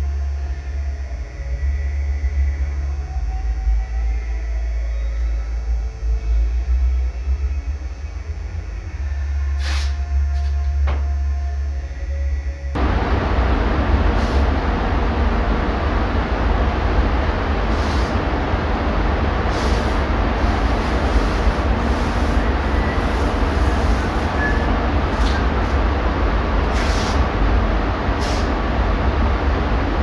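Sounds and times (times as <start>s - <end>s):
ventilation fans rushing air: 0.0s - 30.0s.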